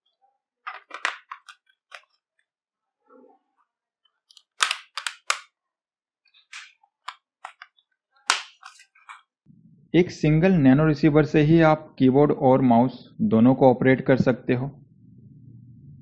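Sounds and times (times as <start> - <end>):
plastic cover snapping shut: 8.3 - 8.8.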